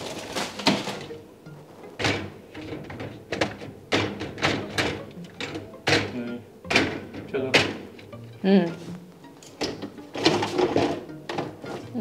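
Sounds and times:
plastic basket clattering on wire racks: 0.0s - 1.2s, 2.0s - 7.9s, 9.6s - 12.0s.

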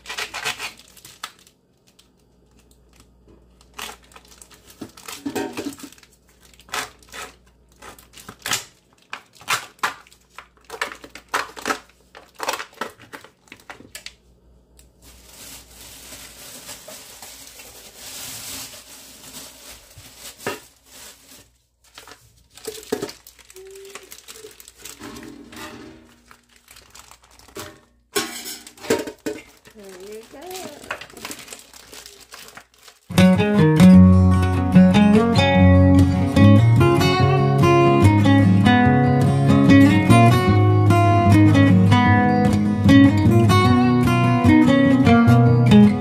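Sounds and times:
plastic packaging crinkling and tearing: 0.0s - 28.0s, 28.7s - 33.7s.

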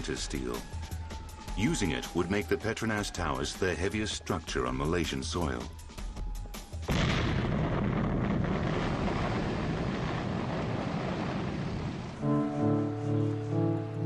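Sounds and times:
rock blast explosion: 6.9s - 12.2s
music with held notes: 12.2s - 14.0s.

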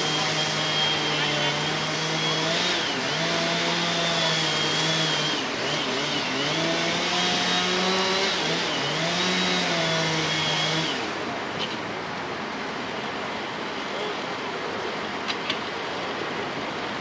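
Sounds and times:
chainsaw cutting wood: 0.0s - 11.3s.

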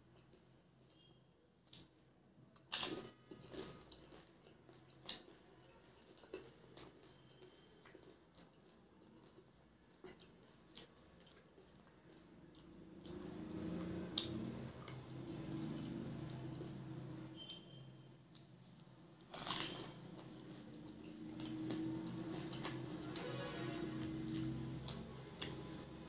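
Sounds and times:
wet chewing: 2.6s - 17.6s, 18.3s - 25.8s
low steady hum: 12.0s - 26.0s
crunchy bite: 19.3s - 20.5s.

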